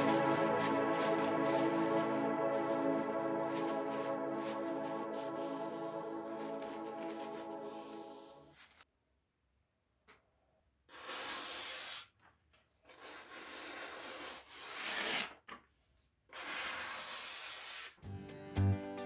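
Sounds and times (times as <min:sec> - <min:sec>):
knife slicing paper: 0:00.0 - 0:08.8, 0:10.9 - 0:12.1, 0:12.9 - 0:15.4, 0:16.4 - 0:18.0
music: 0:00.0 - 0:08.8, 0:18.0 - 0:19.0.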